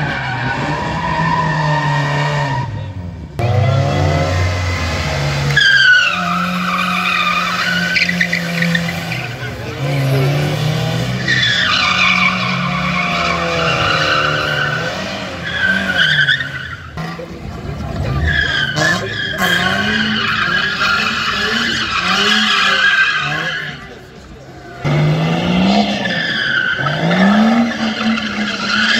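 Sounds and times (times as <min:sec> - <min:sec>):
car engines revving: 0:00.0 - 0:28.9
tyres squealing: 0:05.5 - 0:10.4, 0:11.1 - 0:17.2, 0:18.0 - 0:25.0.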